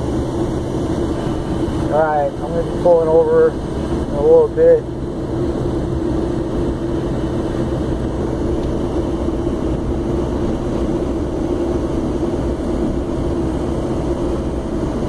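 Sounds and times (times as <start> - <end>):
truck engine and road noise drone: 0.0 - 15.0.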